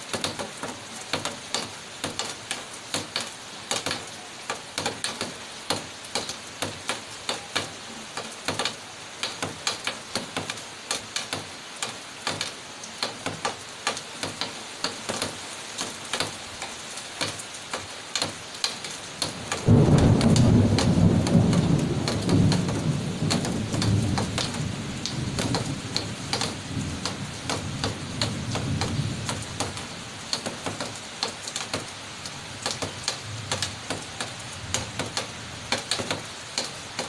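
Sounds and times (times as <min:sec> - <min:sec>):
rain hiss: 0:00.0 - 0:37.0
rain pattering on hard surface: 0:00.0 - 0:37.0
thunder rumble: 0:19.6 - 0:29.8.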